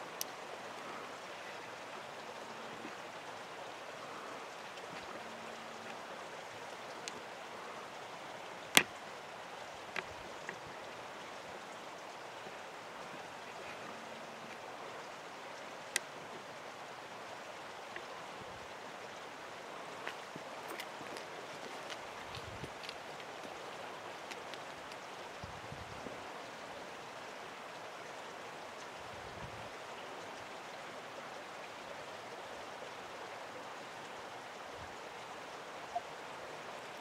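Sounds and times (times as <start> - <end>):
faint hiss: 0.0 - 37.0.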